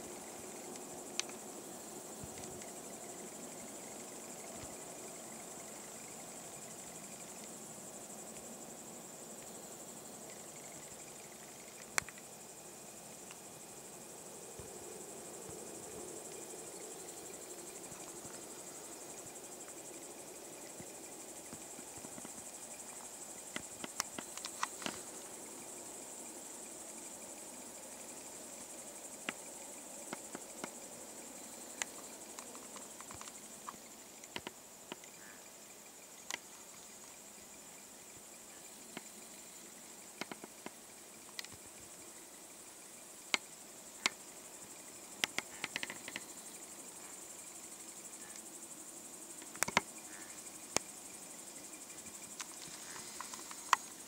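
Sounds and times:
crickets chirring: 0:00.0 - 0:54.0
sharp clicks and snaps: 0:11.8 - 0:12.2.

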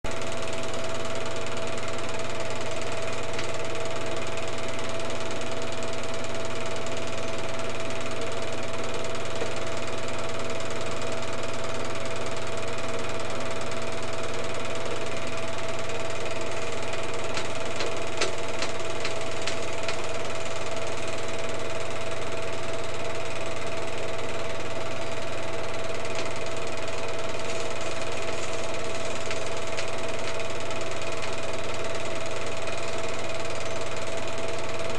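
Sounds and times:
film projector whirring: 0:00.1 - 0:34.9
projector clicks: 0:16.8 - 0:20.3.

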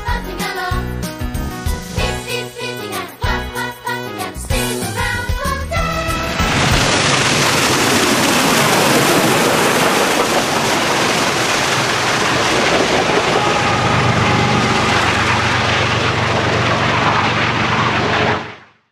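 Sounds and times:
diesel locomotive drone: 0:01.6 - 0:18.7
steam locomotive passing: 0:04.8 - 0:18.5.

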